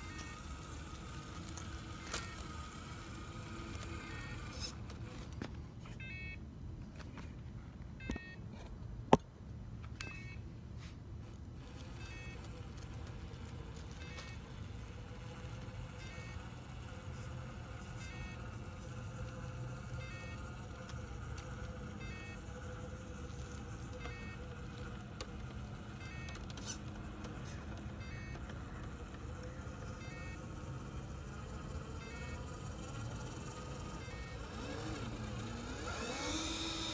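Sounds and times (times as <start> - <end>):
electric motor whine: 0.0 - 5.5, 11.3 - 36.9
wheels scraping curb: 0.0 - 5.9, 10.8 - 36.9
rc crawler low rumble: 0.0 - 36.9
short beeping: 5.8 - 6.4, 8.0 - 8.4, 10.0 - 10.5.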